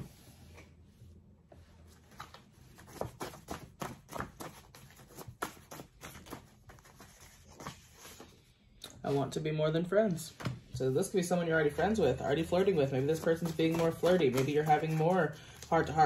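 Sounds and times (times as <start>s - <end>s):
cards being shuffled: 2.0s - 8.3s, 12.3s - 16.0s.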